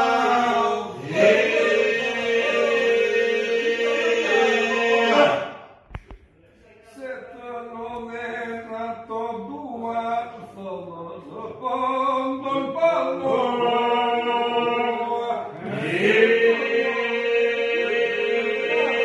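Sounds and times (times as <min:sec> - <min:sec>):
chanted singing: 0:00.0 - 0:05.6, 0:12.2 - 0:19.0.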